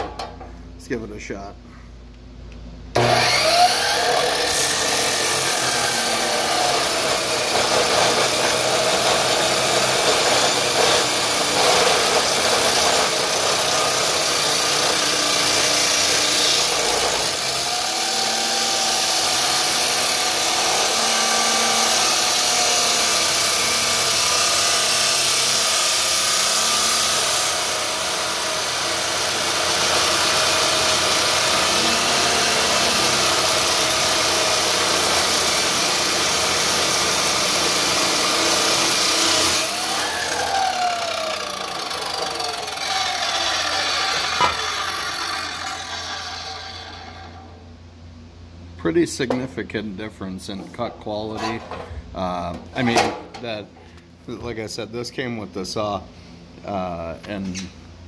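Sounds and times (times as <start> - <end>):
chop saw grinding steel: 3.0 - 47.4.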